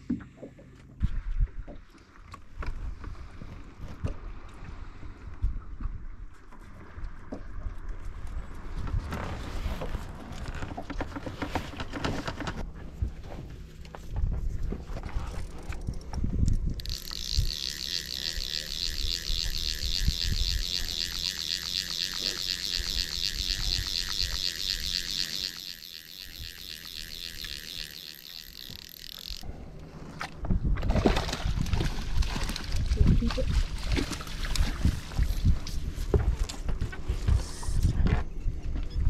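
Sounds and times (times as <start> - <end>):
fishing reel whirring: 15.3 - 29.7.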